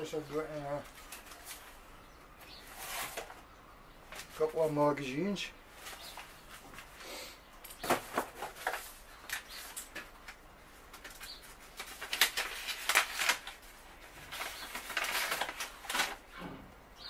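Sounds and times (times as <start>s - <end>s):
paper rustling and crackling: 0.0s - 1.8s, 2.4s - 3.5s, 4.1s - 4.8s, 5.7s - 7.0s, 7.8s - 16.5s.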